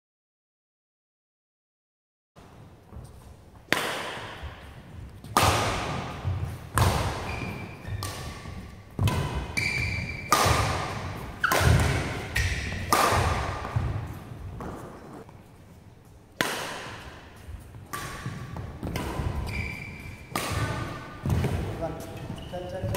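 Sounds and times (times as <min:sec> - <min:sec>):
shoes squeaking on court: 0:02.9 - 0:03.6, 0:04.4 - 0:16.2, 0:17.3 - 0:22.9
rackets striking shuttlecock: 0:03.6 - 0:15.3, 0:16.4 - 0:22.1.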